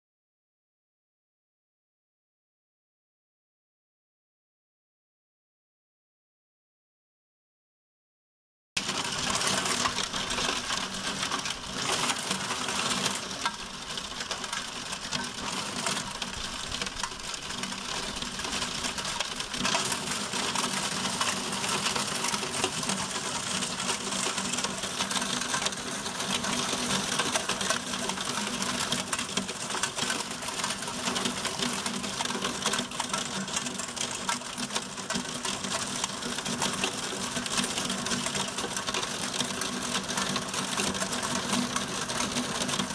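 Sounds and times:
heavy rain pelting: 8.8s - 42.9s.

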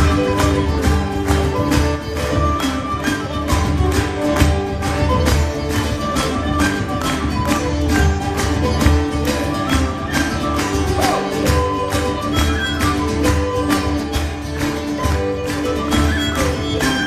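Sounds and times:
acoustic guitar: 0.0s - 17.0s
cajon beat: 0.0s - 17.0s
fiddle: 0.0s - 17.0s
whistle: 4.4s - 17.0s.

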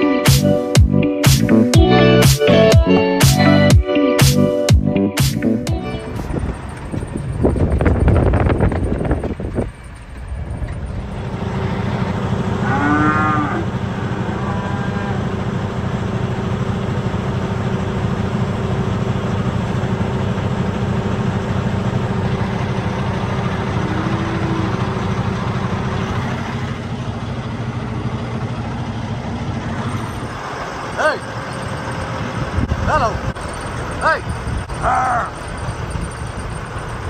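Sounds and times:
low engine hum: 4.4s - 37.0s
cattle mooing: 12.5s - 15.3s, 23.6s - 25.1s.

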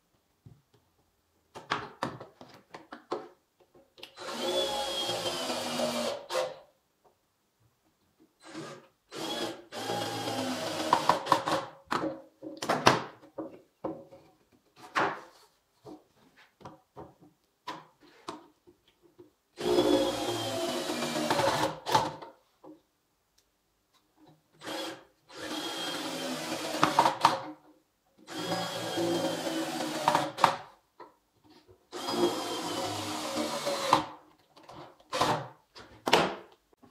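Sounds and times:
cordless drill driving screws: 4.2s - 6.6s, 8.4s - 11.7s, 19.6s - 22.1s, 24.6s - 27.4s, 28.3s - 30.6s, 31.9s - 34.1s.

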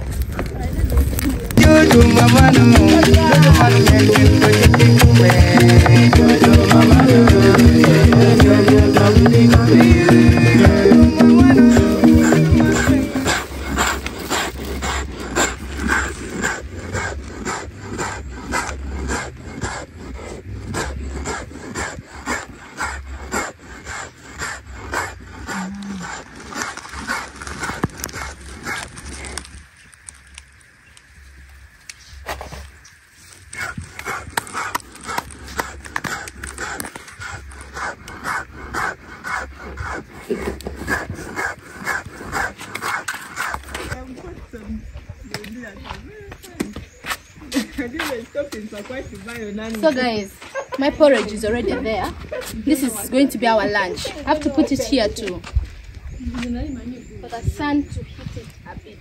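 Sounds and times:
stone quern grinding grain: 0.0s - 29.6s, 32.4s - 44.1s.

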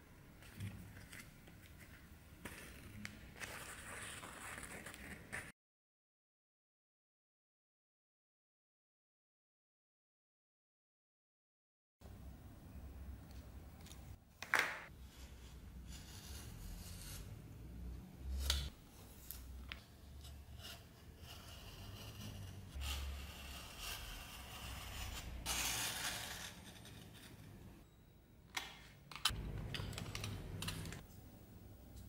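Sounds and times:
tools clicking and tapping: 28.6s - 31.1s.

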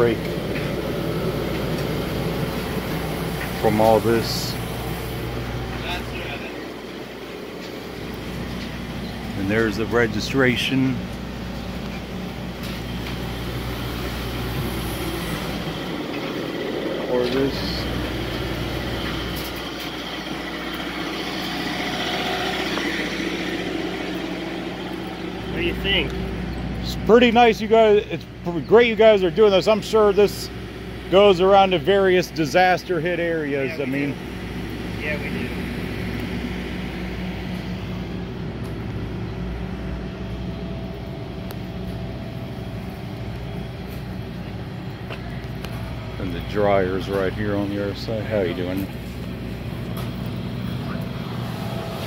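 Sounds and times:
generator engine hum: 0.0s - 52.0s.

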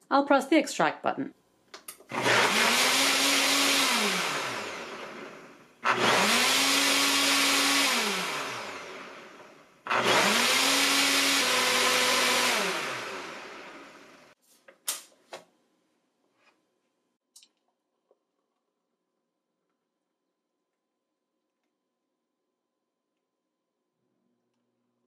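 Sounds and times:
blender motor blending: 2.0s - 14.4s.

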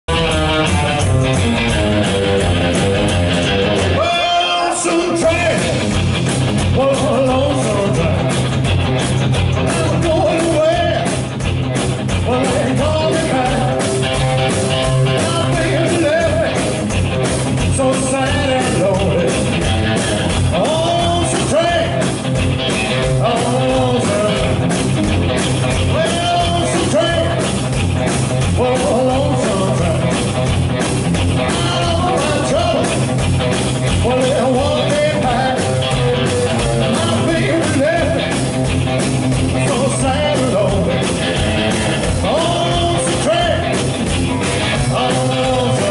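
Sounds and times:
drums: 0.0s - 45.9s
electric guitar: 0.0s - 45.9s
rockabilly band playing: 0.0s - 45.9s
upright double bass: 0.1s - 4.1s, 5.2s - 45.9s
person singing: 6.7s - 8.3s, 12.2s - 13.9s, 15.0s - 16.7s, 17.7s - 19.5s, 20.5s - 22.1s, 23.0s - 24.7s, 25.8s - 27.4s, 28.6s - 30.2s, 31.4s - 32.9s, 34.0s - 38.5s, 39.6s - 45.9s.

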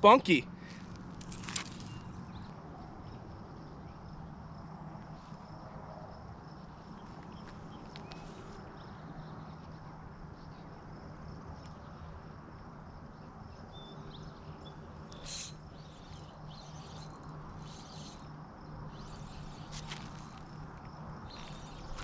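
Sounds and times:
steady low hum: 14.8s - 22.0s
fishing line hissing: 15.2s - 18.2s, 18.9s - 20.5s.

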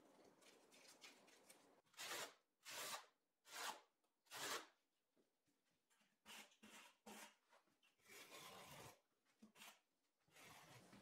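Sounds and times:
tile scraping into mortar: 8.0s - 11.0s.

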